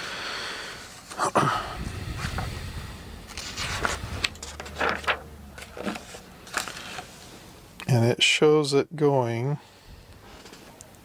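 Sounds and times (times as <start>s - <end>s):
wires rustling: 1.9s - 7.6s.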